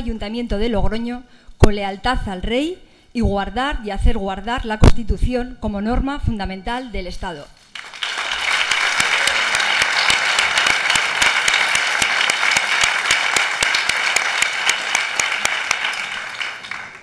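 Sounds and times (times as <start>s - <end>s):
crowd applause: 7.8s - 17.0s.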